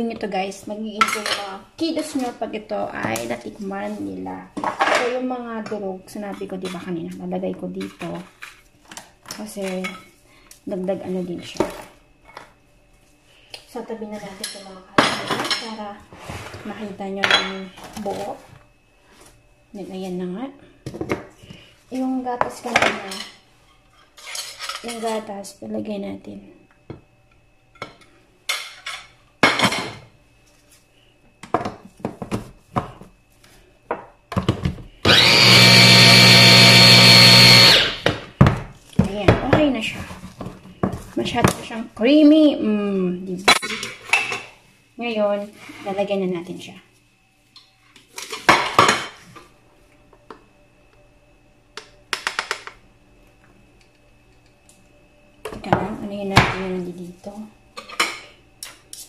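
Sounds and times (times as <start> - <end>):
faint steady hum: 0.0 - 59.0
chopper motor whining: 35.0 - 38.0
food chopper parts clicking: 35.1 - 38.1.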